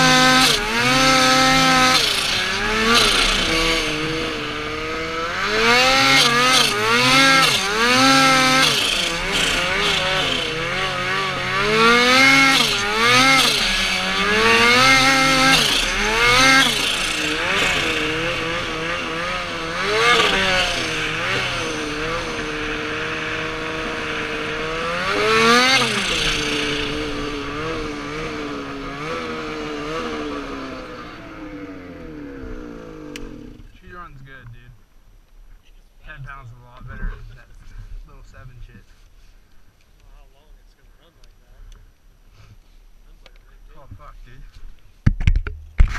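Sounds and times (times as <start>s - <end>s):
snowmobile engine revving: 0.0s - 34.8s.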